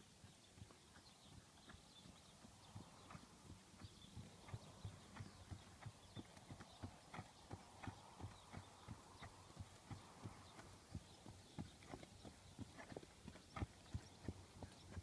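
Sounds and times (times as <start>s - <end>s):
horse hooves trotting on ground: 0.0s - 15.0s.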